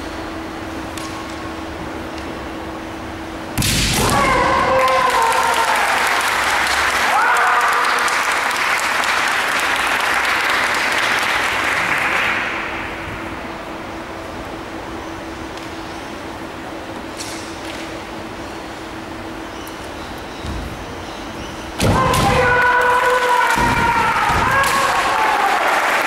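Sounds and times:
bamboo sword strike crack: 3.6 - 4.2
fighters shouting: 3.9 - 8.1, 21.7 - 26.0
spectators clapping and cheering: 4.0 - 13.1, 21.8 - 26.0.

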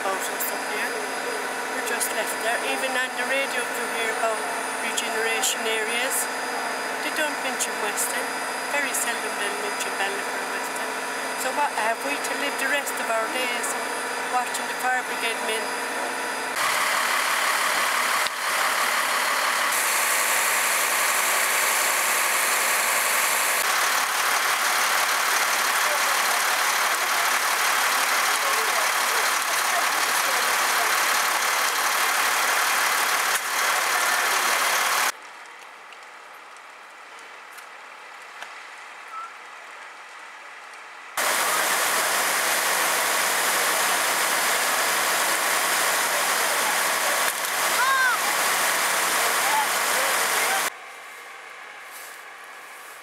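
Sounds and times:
fire engine running: 0.0 - 53.0
hose jet spraying water: 19.7 - 35.1, 41.2 - 50.7.

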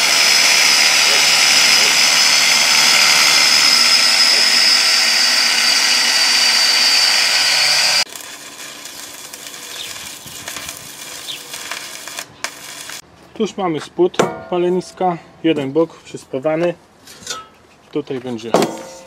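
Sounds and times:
arc welding crackling hiss: 0.0 - 4.8, 7.1 - 13.0
angle grinder cutting steel: 0.0 - 13.0.

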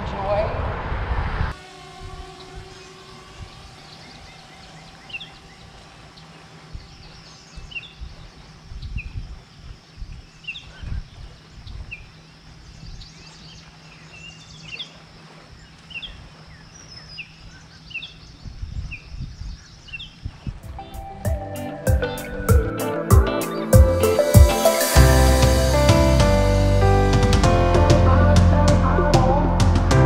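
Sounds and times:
wind on microphone: 0.0 - 12.2, 18.3 - 21.4
water: 1.5 - 21.2
bird chirping: 2.0 - 25.0.

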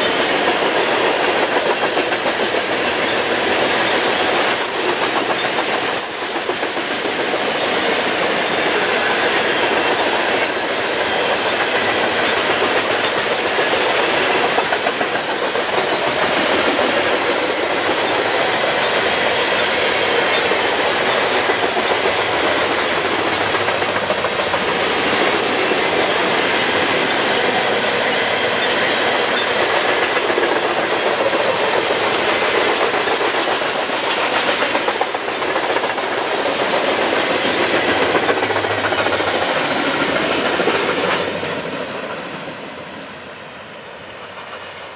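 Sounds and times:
steel train wheels on rails: 0.0 - 44.9.

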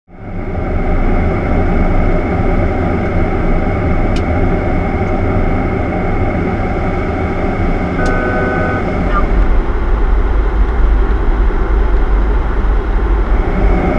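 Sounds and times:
aircraft cockpit rumble: 0.1 - 13.9.

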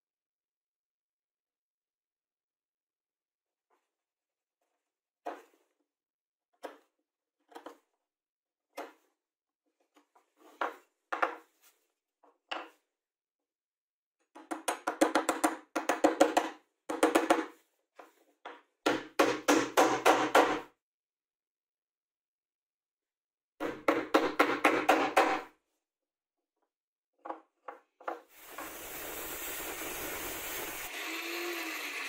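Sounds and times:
tools knocking on plywood: 10.5 - 11.5, 14.3 - 20.7, 23.6 - 25.5.

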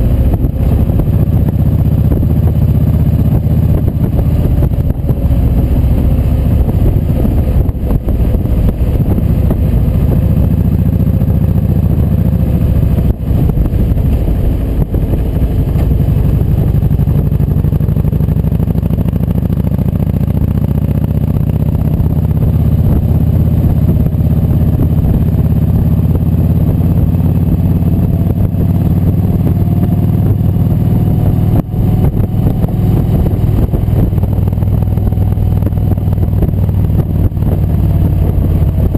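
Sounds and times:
motorcycle engine running: 0.0 - 38.9
wind noise: 0.0 - 38.9.

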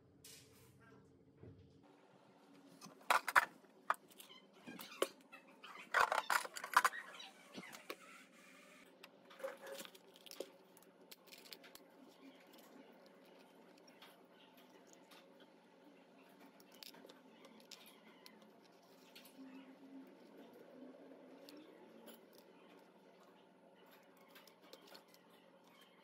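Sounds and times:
small objects clattering in plastic drawer: 2.8 - 4.1, 5.8 - 7.2.

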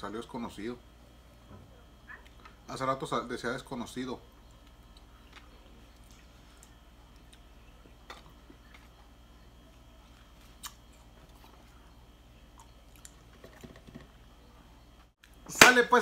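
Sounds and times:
faint chewing of food: 4.3 - 15.4.

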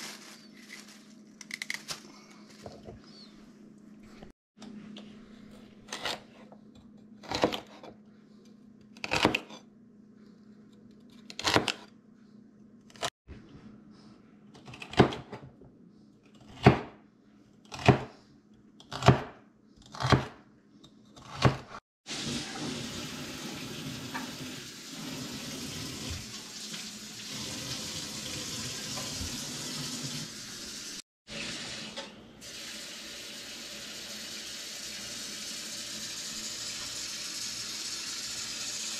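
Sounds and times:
knife chopping on cutting board: 16.5 - 17.0, 17.7 - 18.1, 18.9 - 20.4, 21.2 - 21.8
faucet running into saucepan: 22.1 - 38.9.

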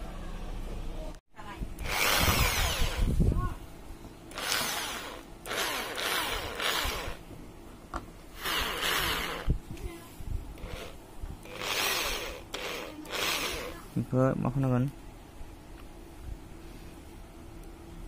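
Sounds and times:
electric drill motor spinning: 1.8 - 3.2, 4.3 - 7.2, 8.4 - 9.6, 10.6 - 13.8.

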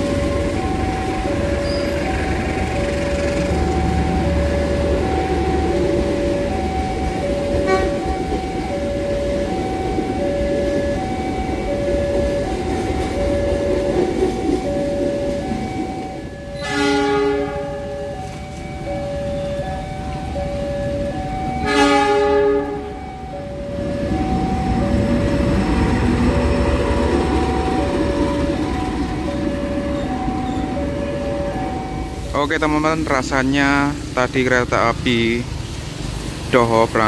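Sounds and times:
level crossing alarm two-tone chime: 0.0 - 32.9
locomotive horn blasts: 7.4 - 8.2, 16.6 - 18.4, 21.6 - 23.2
heavy rain hissing: 32.0 - 37.0.

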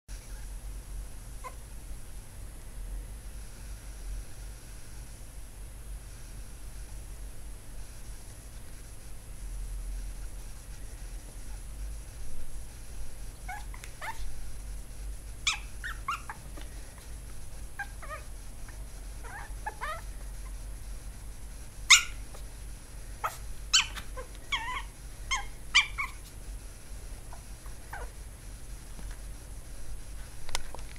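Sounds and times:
puppy yipping and whimpering: 1.4 - 1.6, 13.4 - 14.3, 15.4 - 16.6, 17.8 - 18.3, 19.2 - 20.6, 21.9 - 22.4, 23.2 - 26.3, 27.3 - 28.2.

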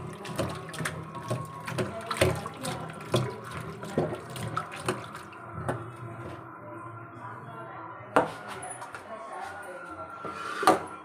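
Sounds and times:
splashing in a bowl of water: 0.0 - 6.4.

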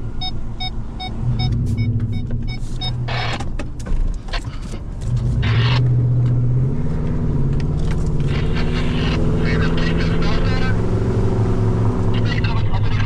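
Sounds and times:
beeping warning chime: 0.2 - 3.3.

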